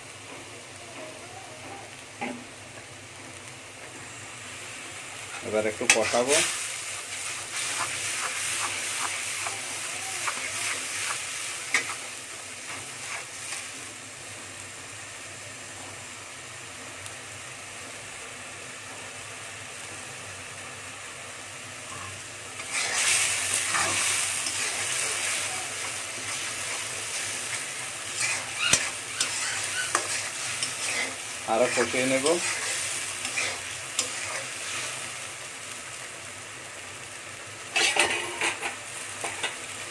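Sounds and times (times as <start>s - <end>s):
paste sizzling in hot oil: 0.0s - 17.3s, 19.8s - 39.9s
spatula scraping metal pan: 22.6s - 25.4s, 27.1s - 34.5s.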